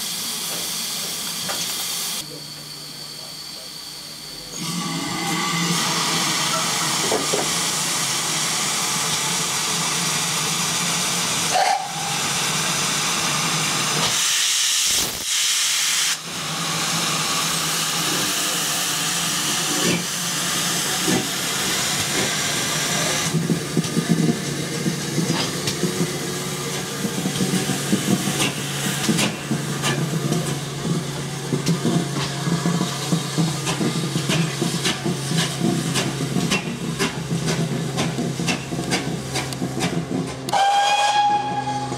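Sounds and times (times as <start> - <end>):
steam locomotive hissing steam: 0.0 - 41.9
wheels clanking over rail joints: 23.3 - 41.4.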